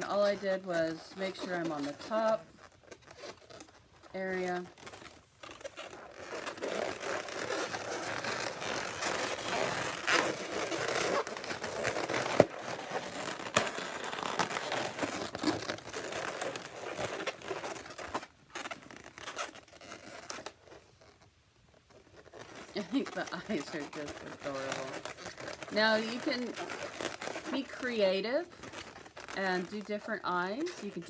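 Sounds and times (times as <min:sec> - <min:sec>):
balloons rubbing and squeezing: 0:00.0 - 0:31.0.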